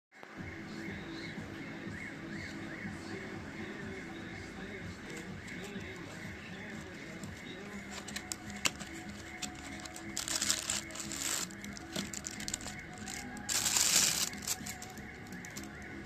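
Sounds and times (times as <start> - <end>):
background music: 0.2 - 16.0
plastic bag crinkling: 7.8 - 15.7.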